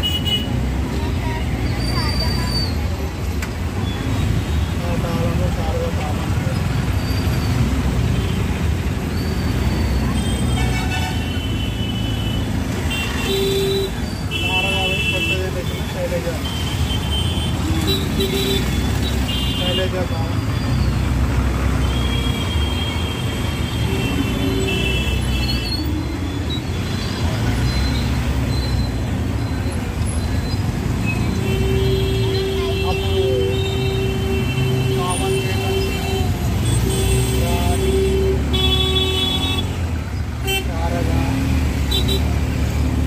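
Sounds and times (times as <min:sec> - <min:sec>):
road noise: 0:00.0 - 0:43.0
traffic engines rumbling: 0:00.0 - 0:43.0
vehicle horns: 0:09.8 - 0:20.8, 0:21.6 - 0:41.1, 0:41.7 - 0:42.5.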